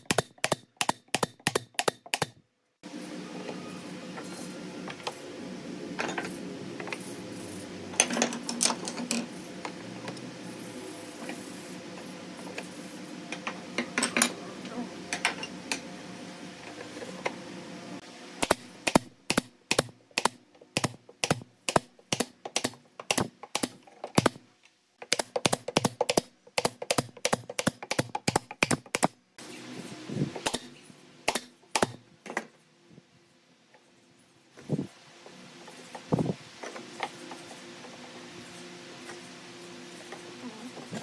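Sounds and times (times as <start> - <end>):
pneumatic nailer shots: 0.0 - 2.4, 18.4 - 24.4, 25.0 - 29.2, 30.3 - 32.0.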